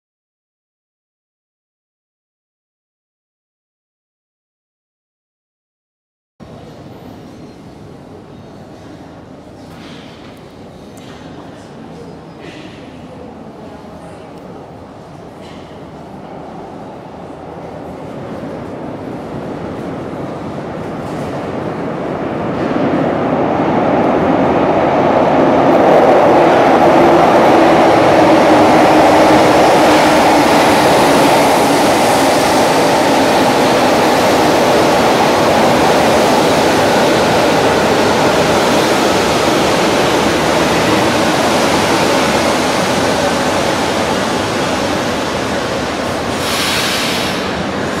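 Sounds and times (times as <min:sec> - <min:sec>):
train wheels rumbling on rails: 0:17.2 - 0:48.0
brief hiss: 0:46.3 - 0:47.5.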